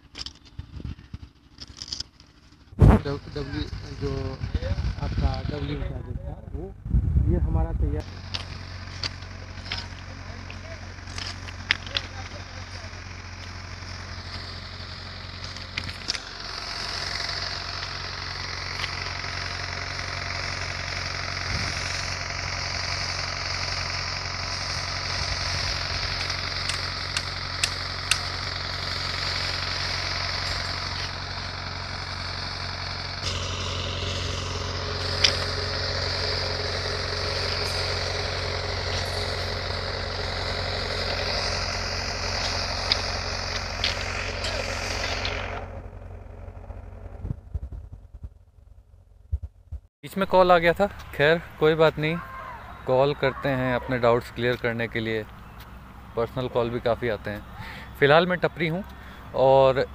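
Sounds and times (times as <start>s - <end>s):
engine idling: 0.0s - 59.9s
sharp clicks: 26.1s - 28.4s.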